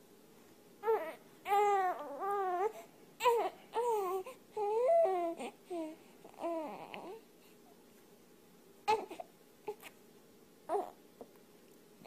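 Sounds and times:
infant crying: 0:00.8 - 0:07.2, 0:08.9 - 0:09.9, 0:10.7 - 0:11.0.

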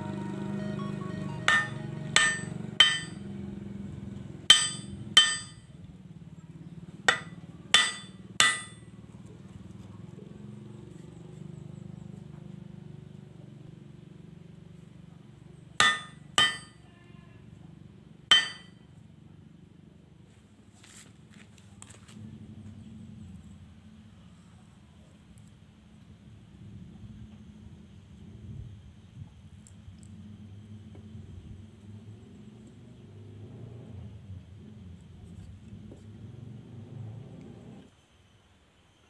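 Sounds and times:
hammer striking steel on anvil: 0:01.4 - 0:03.4, 0:04.5 - 0:05.7, 0:07.1 - 0:08.9, 0:15.8 - 0:16.8, 0:18.3 - 0:18.8.

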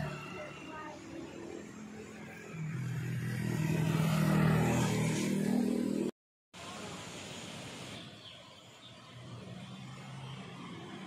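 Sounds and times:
vehicle engine passing: 0:00.0 - 0:06.1
outdoor background noise: 0:00.0 - 0:11.0.

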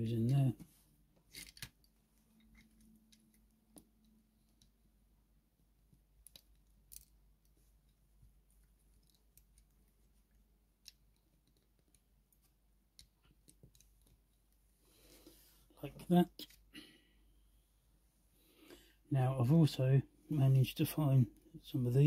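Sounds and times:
plastic bricks clicking: 0:06.2 - 0:07.2.

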